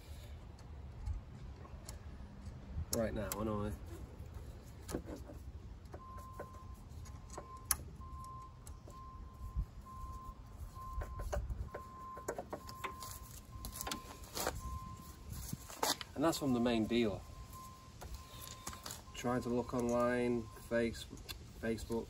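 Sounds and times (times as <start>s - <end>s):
electronic beeps: 16.6s - 20.8s.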